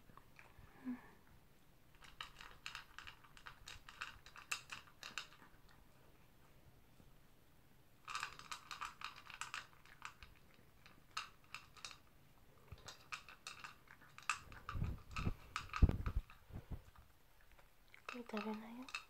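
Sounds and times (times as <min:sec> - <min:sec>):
dog crunching food in plastic bowl: 0:01.9 - 0:05.8, 0:08.0 - 0:12.1, 0:12.7 - 0:19.0.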